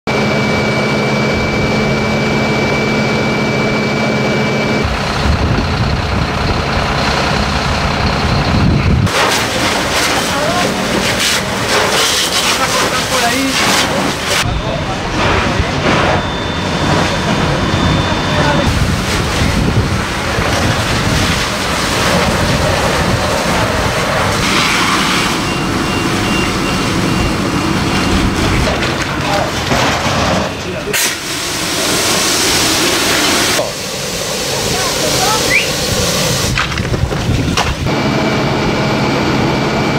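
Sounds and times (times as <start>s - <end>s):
fire engine running: 0.1s - 39.9s
high steady whine: 0.1s - 39.9s
faint high beeps: 14.4s - 18.7s, 25.4s - 28.4s
loud hiss: 30.9s - 36.6s.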